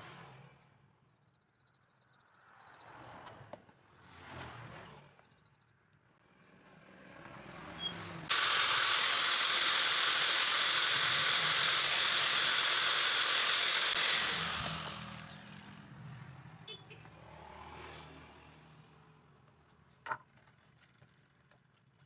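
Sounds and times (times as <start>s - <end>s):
angle grinder running: 8.3s - 15.8s.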